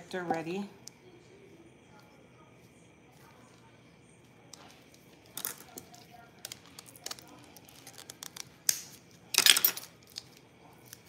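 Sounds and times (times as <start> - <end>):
packaging rustling: 5.0 - 11.0.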